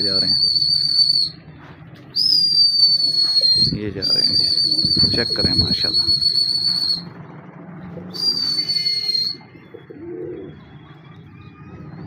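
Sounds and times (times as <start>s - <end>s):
pigeon cooing: 2.2s - 7.0s, 8.0s - 12.0s
high whistle sliding down: 8.2s - 9.4s.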